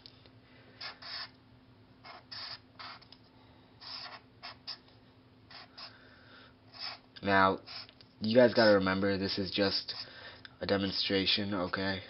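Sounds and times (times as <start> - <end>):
marker scratching on paper: 0.8 - 1.3, 2.0 - 3.0, 3.8 - 4.8, 5.5 - 5.9, 6.7 - 7.0, 7.6 - 7.9.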